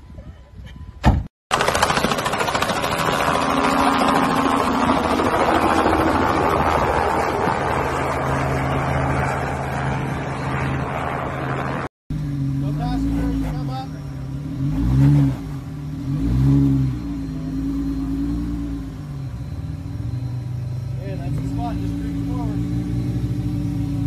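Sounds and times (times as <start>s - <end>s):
car engine running hard: 12.1s - 24.0s
tyres churning dirt: 12.6s - 15.5s.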